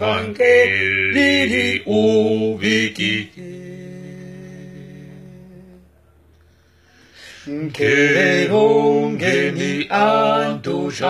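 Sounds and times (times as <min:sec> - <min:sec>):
men singing a cappella: 0:00.0 - 0:05.9, 0:07.3 - 0:11.0.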